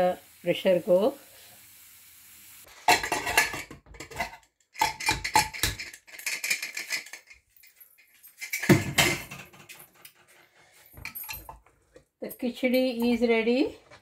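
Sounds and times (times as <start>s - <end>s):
metal lid clanks and scrapes: 2.8s - 7.2s.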